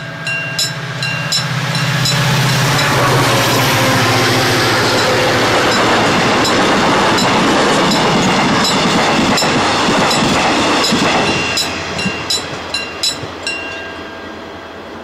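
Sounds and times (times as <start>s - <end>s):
train wheels rumbling on rails: 0.0s - 15.0s
wheels clicking over rail joints: 4.8s - 13.9s.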